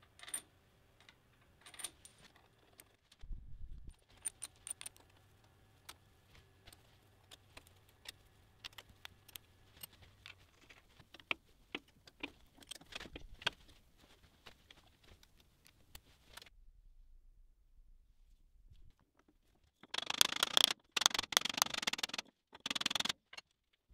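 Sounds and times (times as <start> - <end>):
small metallic clicks: 3.9 - 6.0, 6.6 - 13.6, 19.8 - 23.8.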